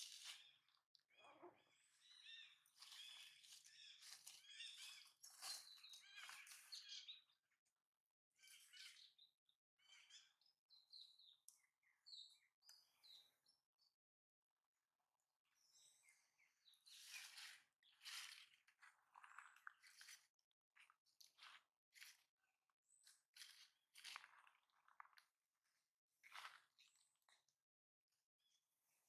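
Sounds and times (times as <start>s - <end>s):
birds chirping and singing: 0.0s - 7.4s, 8.4s - 13.4s, 15.6s - 18.4s.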